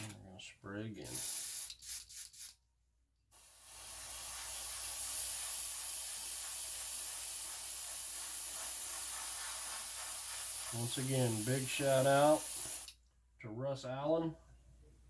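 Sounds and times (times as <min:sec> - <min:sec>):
airbrush spraying hiss: 0:01.1 - 0:02.5, 0:03.4 - 0:13.0
airbrush puffs: 0:01.1 - 0:02.6, 0:03.4 - 0:13.0.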